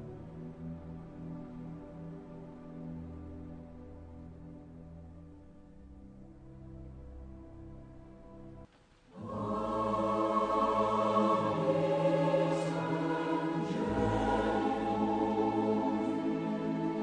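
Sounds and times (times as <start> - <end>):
soft sustained music: 0.0 - 17.0
choral singing: 9.1 - 17.0.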